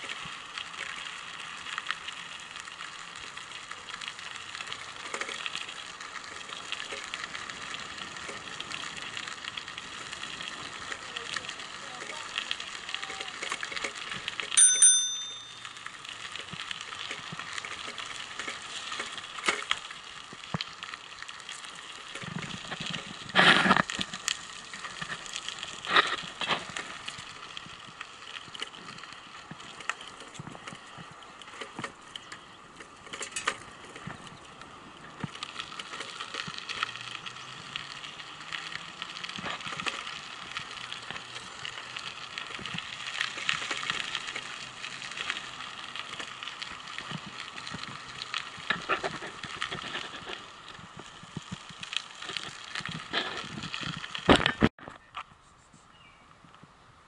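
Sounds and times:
bike knocking and rattling: 0.0 - 55.1
bicycle tyres crunching on gravel: 0.0 - 57.0
bicycle bell ringing: 14.5 - 16.2.

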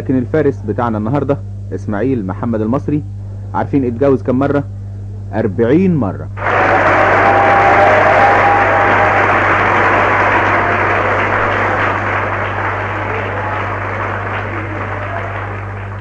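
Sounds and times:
steady low hum: 0.0 - 16.0
audience applauding: 6.4 - 16.0.

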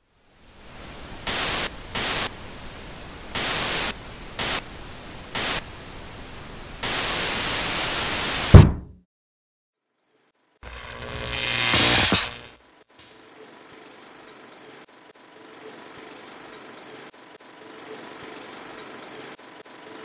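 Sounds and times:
television static hiss: 0.0 - 8.5
fist banging tv set: 8.6 - 9.0.

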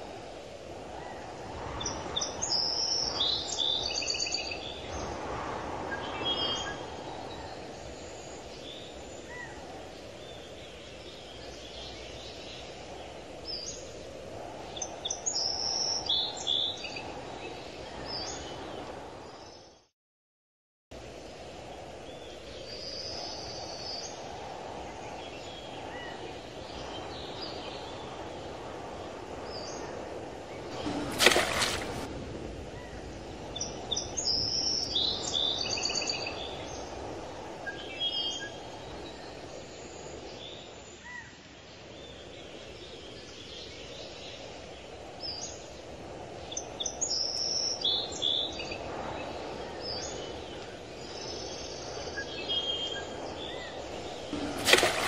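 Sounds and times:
low rushing background: 26.5 - 35.6.

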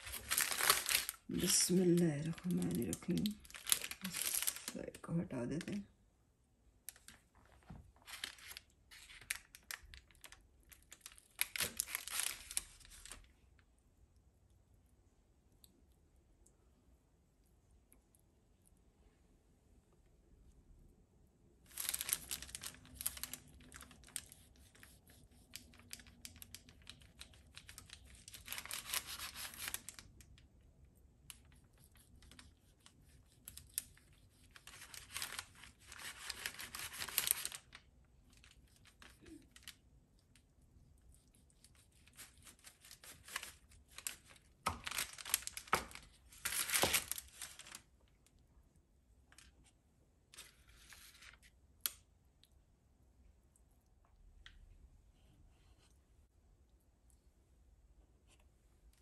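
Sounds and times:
paper crinkling: 0.0 - 5.0, 6.9 - 13.3, 21.7 - 30.4, 31.3 - 39.8, 40.9 - 47.9, 50.3 - 51.6.

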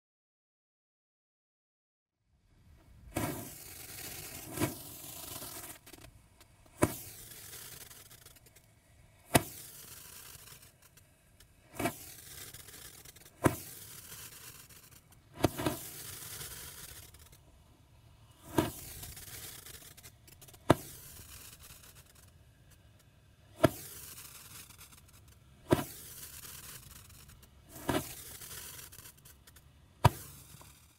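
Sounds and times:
hissing spray: 3.1 - 30.9
roman candle pops: 5.6 - 7.3, 9.3 - 9.7, 11.7 - 14.2, 23.6 - 25.0, 27.4 - 29.1, 30.0 - 30.9.

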